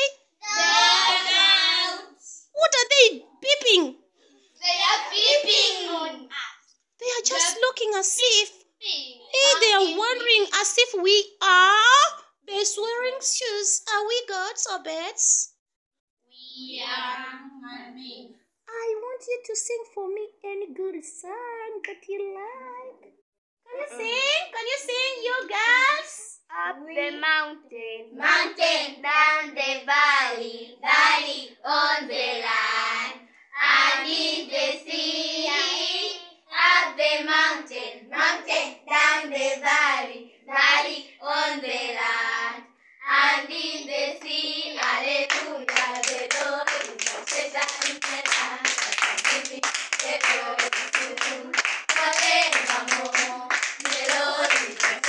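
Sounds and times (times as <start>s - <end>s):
girls singing together: 31.7s - 55.0s
fast hand-clapping: 44.8s - 55.0s.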